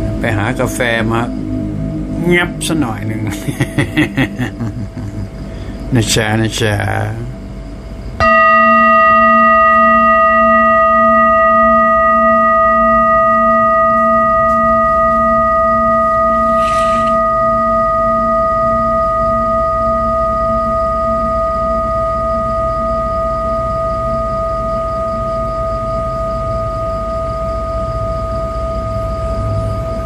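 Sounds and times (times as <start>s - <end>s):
metal singing bowl ringing: 0.0s - 4.6s, 8.2s - 30.0s.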